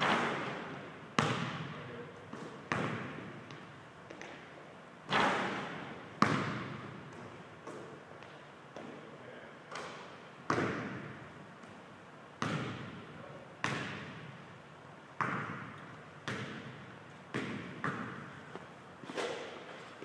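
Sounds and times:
basketball bouncing on hardwood: 1.2s - 1.7s, 2.3s - 4.4s, 5.5s - 7.9s, 12.4s - 13.0s, 15.2s - 18.3s.

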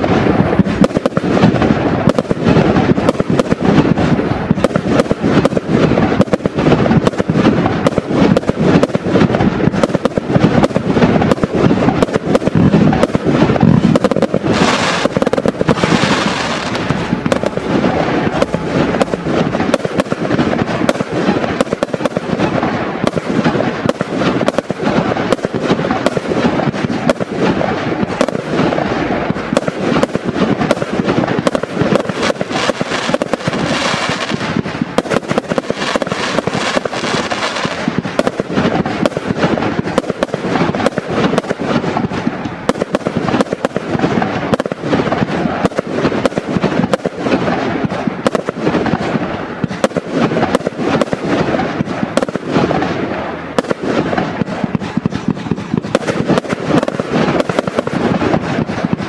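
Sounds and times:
firework hiss: 0.0s - 59.0s
firework shells bursting: 0.0s - 59.0s.

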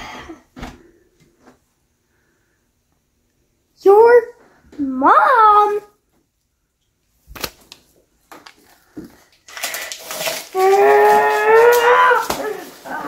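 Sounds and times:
paper being crumpled: 7.3s - 13.0s
child groaning: 10.5s - 13.0s.

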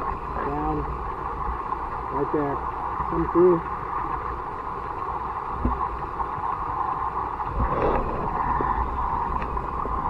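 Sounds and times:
creek water rushing underwater: 0.0s - 10.0s
knocks underwater: 7.5s - 10.0s.

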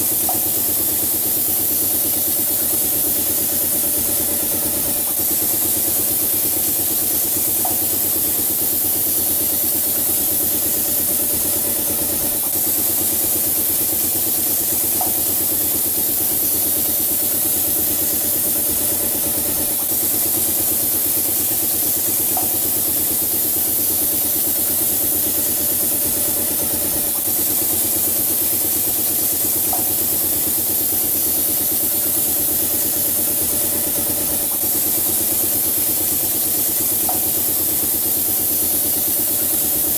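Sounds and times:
painting machine humming: 0.0s - 39.9s.

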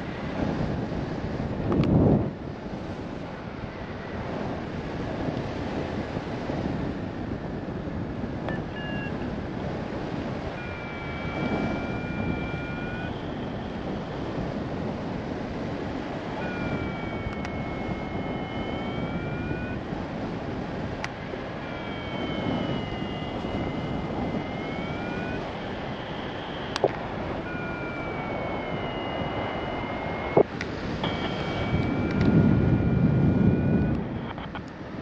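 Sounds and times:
airflow rushing over microphone: 9.3s - 35.0s
thin high tone: 10.5s - 14.2s, 16.3s - 19.8s, 21.6s - 34.5s.

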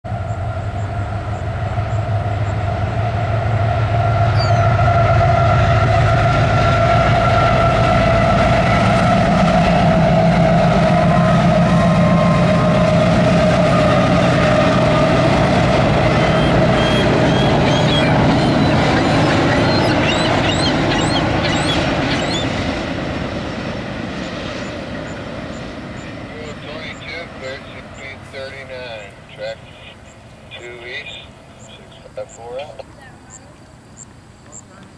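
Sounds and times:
diesel locomotive engine rumble: 0.0s - 34.9s
high bird chirps: 4.4s - 4.7s, 16.2s - 22.5s.

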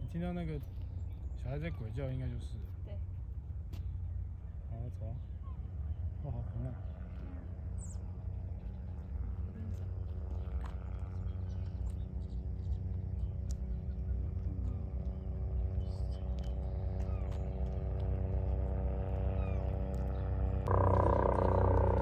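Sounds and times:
engine hum: 5.3s - 22.0s
low rumble: 7.1s - 22.0s.

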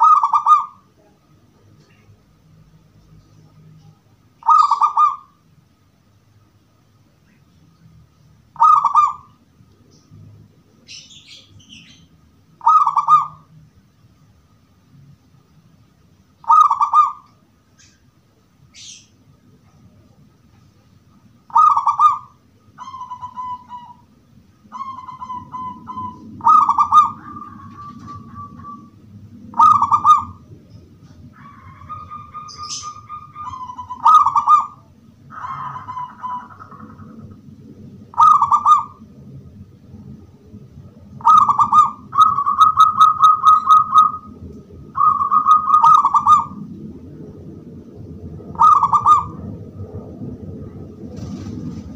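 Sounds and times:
dove cooing: 0.0s - 0.9s, 3.8s - 5.4s, 8.6s - 9.3s, 12.6s - 13.5s, 16.4s - 17.2s, 21.5s - 24.1s, 24.7s - 37.4s, 38.0s - 39.2s, 41.2s - 46.8s, 48.4s - 51.5s.

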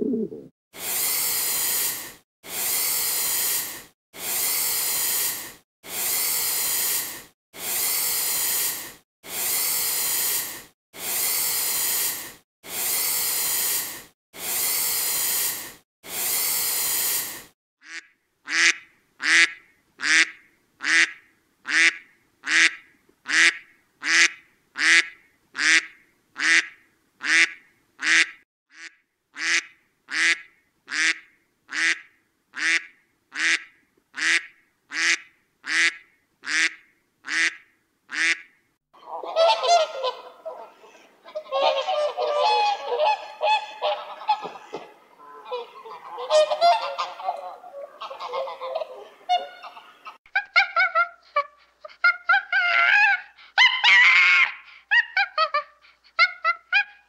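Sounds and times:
iguana hissing: 0.8s - 17.5s
duck quacking: 17.8s - 38.4s, 39.0s - 50.6s.

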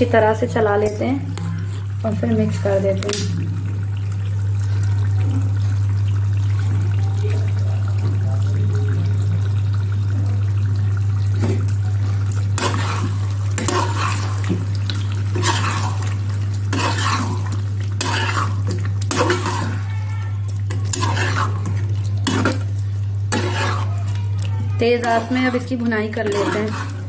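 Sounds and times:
steady low hum: 0.0s - 19.8s
metal spatula scraping a pan: 12.6s - 14.3s, 15.3s - 16.1s, 16.7s - 19.8s, 20.7s - 22.6s, 23.3s - 23.9s, 26.1s - 27.0s.

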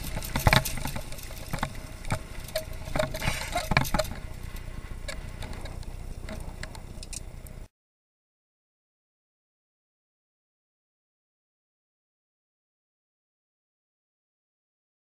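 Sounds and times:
motorcycle knocking and rattling: 0.0s - 7.2s
motorcycle engine and wind rumble: 0.0s - 7.7s.

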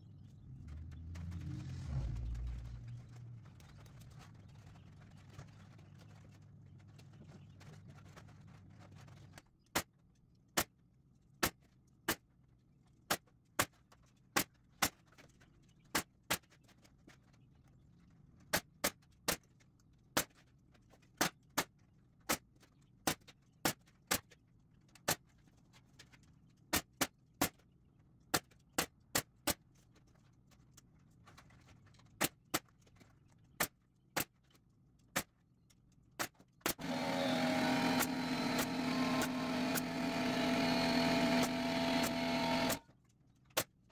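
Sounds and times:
pneumatic stapler shots: 36.7s - 42.8s
loud humming machine noise: 36.8s - 42.8s.

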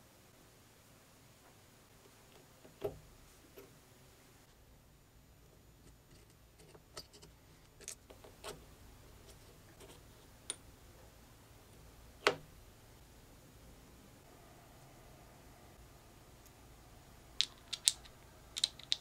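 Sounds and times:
metal parts clicking: 17.4s - 19.0s.

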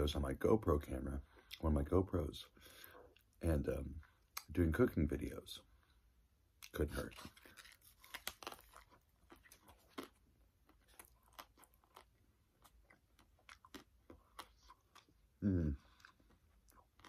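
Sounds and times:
chocolate shell crunching: 6.7s - 15.1s
foil wrapper crinkling: 7.0s - 9.6s.

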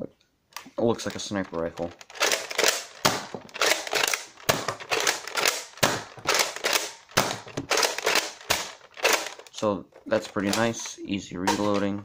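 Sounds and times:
toy blaster plastic clacks: 0.6s - 9.6s, 10.4s - 12.0s.

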